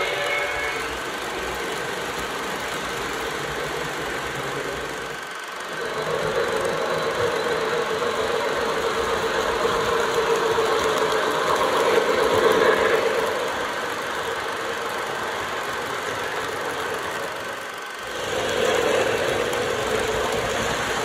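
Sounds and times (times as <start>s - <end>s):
model train rolling: 0.0s - 21.0s.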